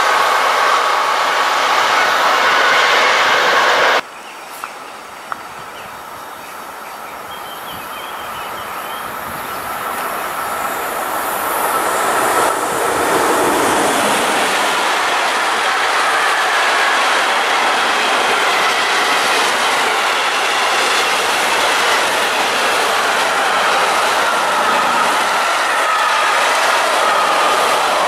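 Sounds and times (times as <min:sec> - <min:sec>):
train wheels rushing on rails: 0:00.0 - 0:04.7, 0:06.0 - 0:28.0.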